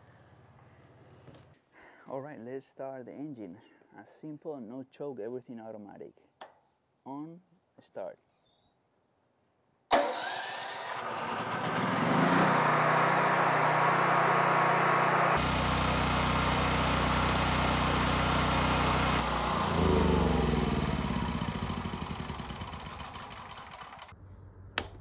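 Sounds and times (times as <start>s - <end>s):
generator engine running: 9.9s - 24.1s.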